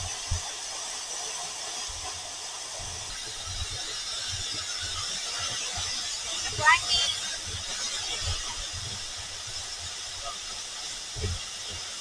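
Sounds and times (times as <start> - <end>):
high outdoor hiss: 0.0 - 12.0.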